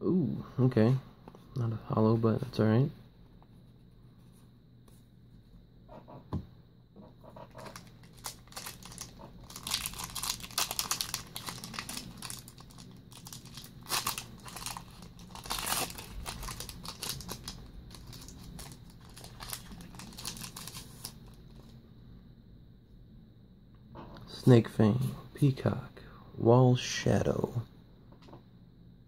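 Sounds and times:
foil wrapper crinkling and tearing: 0:07.6 - 0:21.4.

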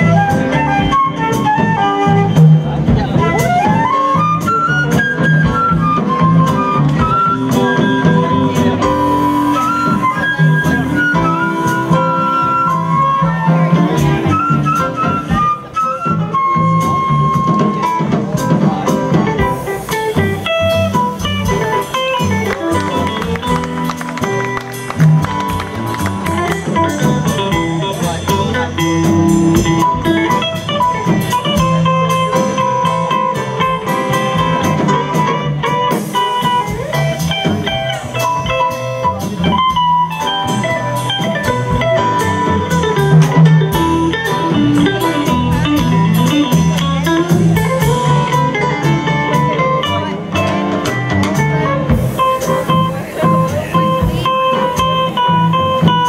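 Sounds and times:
electric guitar: 0:00.0 - 0:56.0
live jazz band playing: 0:00.0 - 0:56.0.

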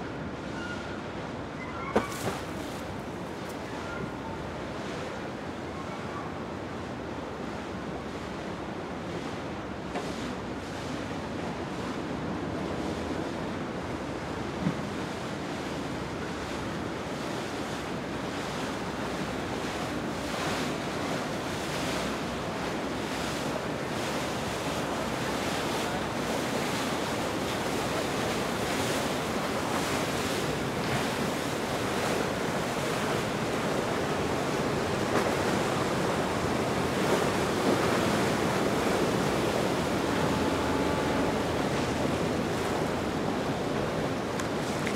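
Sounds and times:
river water rushing: 0:18.0 - 0:44.9.

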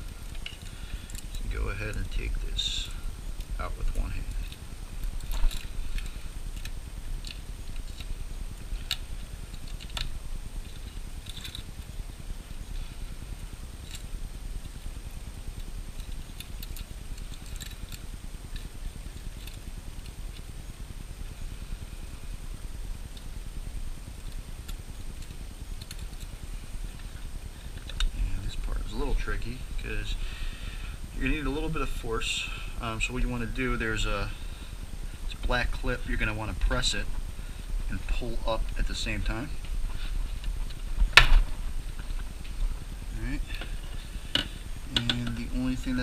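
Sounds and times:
handling rumble: 0:00.0 - 0:19.8
small clicks of parts: 0:04.3 - 0:11.9, 0:15.6 - 0:20.5, 0:24.2 - 0:28.1.

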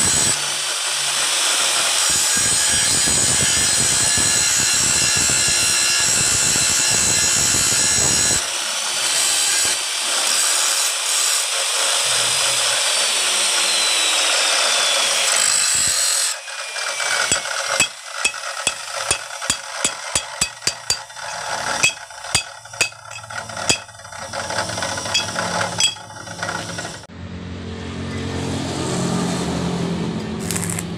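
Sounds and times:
chop saw cutting steel pipe: 0:00.0 - 0:27.1, 0:30.4 - 0:30.9
metal pipe pieces clicking: 0:17.2 - 0:27.0.

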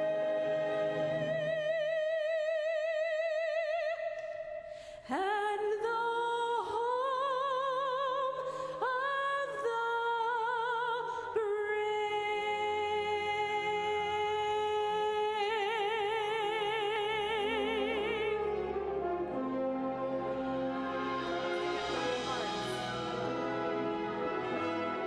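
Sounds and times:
woman singing with vibrato: 0:00.0 - 0:19.5.

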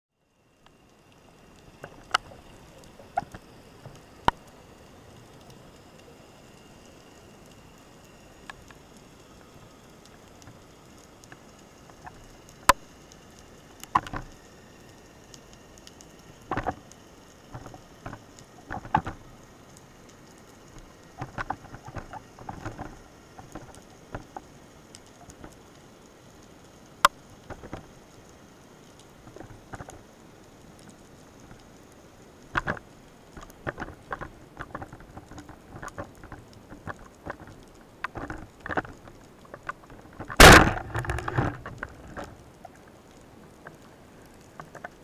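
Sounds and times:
faint underwater hiss: 0:00.2 - 0:45.0
bursts of crackling: 0:33.6 - 0:43.0.

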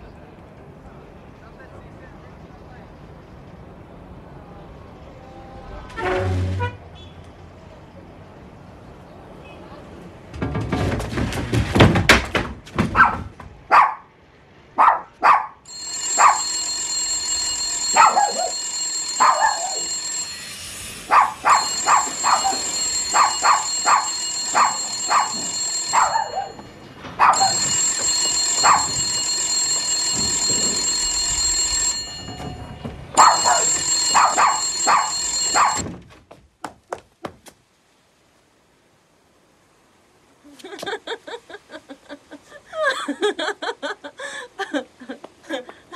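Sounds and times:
small dog barking: 0:13.0 - 0:14.1, 0:14.8 - 0:15.6, 0:16.2 - 0:16.5, 0:17.9 - 0:18.6, 0:19.2 - 0:19.9, 0:21.1 - 0:26.6, 0:27.2 - 0:27.6, 0:33.2 - 0:35.8
electric telephone bell ringing: 0:15.7 - 0:35.9.

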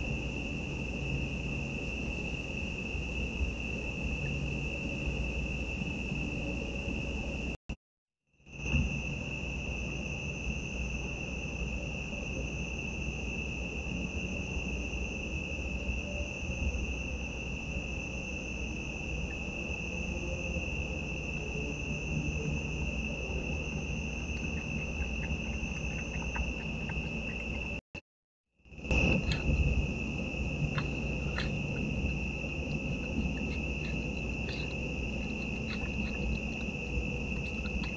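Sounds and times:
crickets trilling: 0:00.0 - 0:07.6, 0:08.4 - 0:28.0, 0:28.7 - 0:37.9
low steady rumble: 0:20.1 - 0:27.8, 0:28.8 - 0:37.9
faint ticks: 0:30.7 - 0:37.9.

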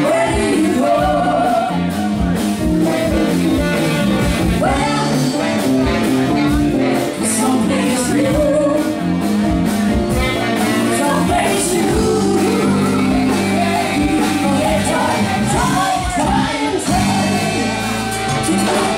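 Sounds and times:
funk band playing: 0:00.0 - 0:18.9
person singing: 0:10.4 - 0:18.9.

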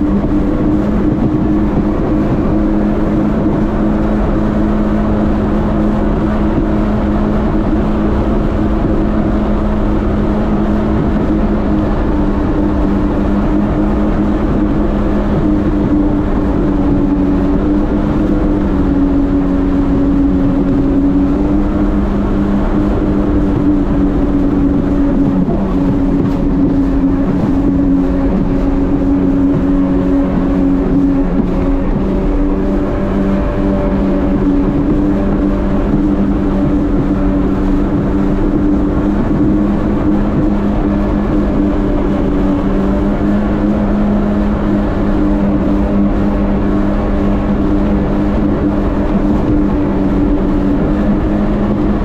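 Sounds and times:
jet ski engine running: 0:00.0 - 0:52.0
wind and water rushing: 0:00.0 - 0:52.0.

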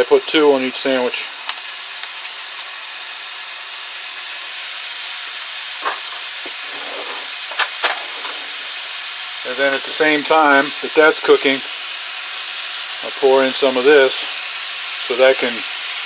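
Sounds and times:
meat sizzling in a skillet: 0:00.0 - 0:16.0
short pops: 0:05.8 - 0:08.8.

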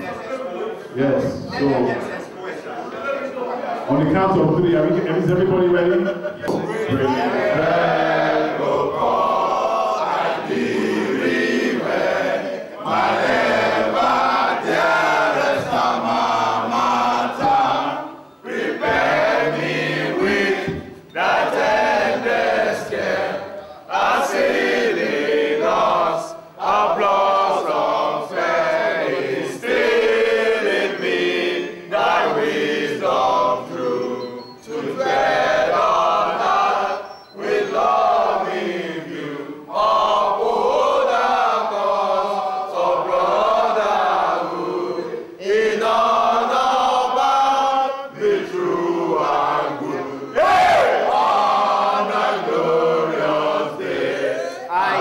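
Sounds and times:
group of adults singing in unison: 0:00.0 - 0:00.8, 0:06.2 - 0:55.0.

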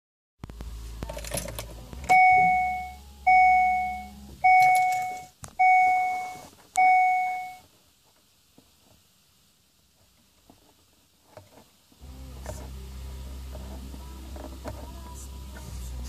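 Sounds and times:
low hum: 0:00.4 - 0:07.6
two-tone dashboard warning chime: 0:02.1 - 0:07.6.

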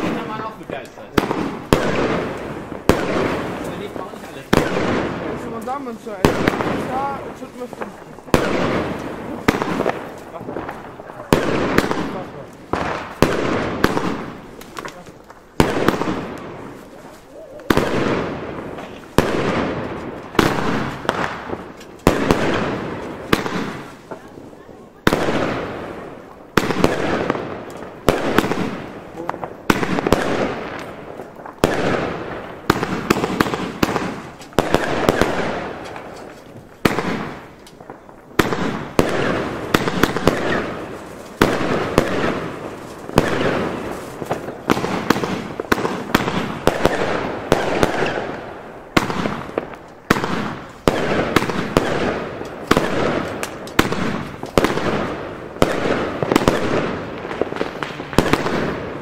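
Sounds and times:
fireworks bangs: 0:00.0 - 0:59.0.

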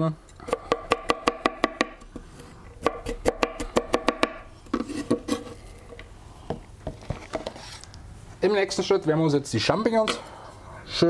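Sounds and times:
knife chopping on wooden board: 0:00.5 - 0:02.0, 0:02.8 - 0:05.2.

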